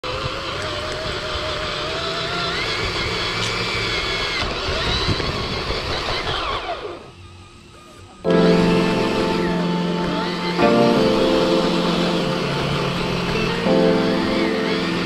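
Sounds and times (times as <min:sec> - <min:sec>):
remote control car motor whining: 0:00.1 - 0:08.2
background music: 0:08.3 - 0:15.0.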